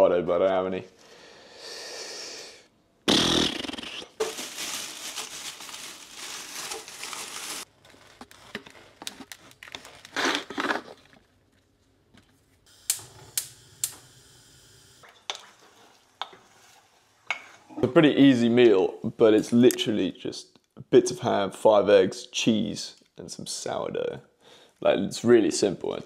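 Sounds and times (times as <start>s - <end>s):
plastic bag rustling: 4.1s - 11.3s
gas burner hum: 12.7s - 15.0s.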